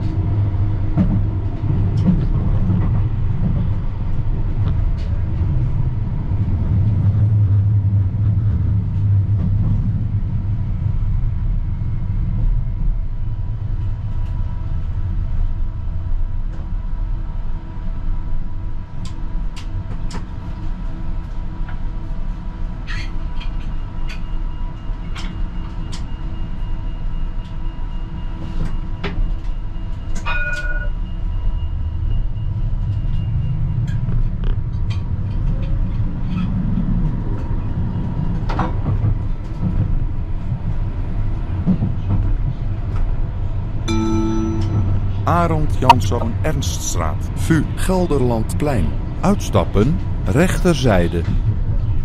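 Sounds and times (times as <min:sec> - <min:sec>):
tram running rumble: 0:00.0 - 0:52.0
short tone: 0:43.9 - 0:49.6.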